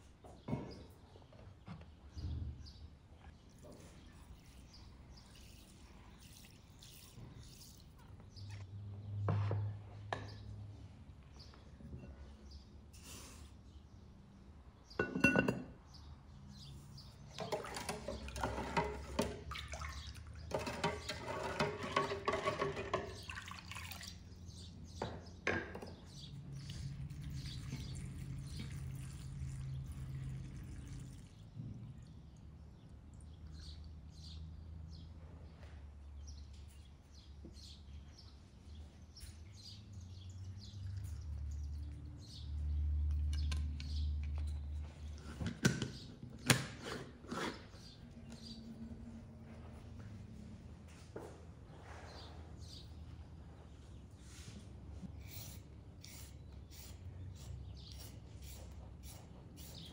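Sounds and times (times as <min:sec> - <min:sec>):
water pouring into jar: 0:04.2 - 0:08.1, 0:17.4 - 0:24.3, 0:26.6 - 0:31.6
wooden spoon scraping pot: 0:17.4 - 0:19.5, 0:20.4 - 0:23.3, 0:46.6 - 0:48.0.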